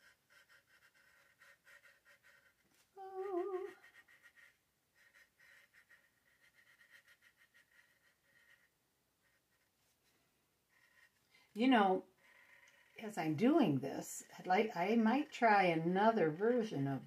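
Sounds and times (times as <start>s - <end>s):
paint marker scratching canvas: 0.0s - 11.2s
woman humming: 3.0s - 4.0s.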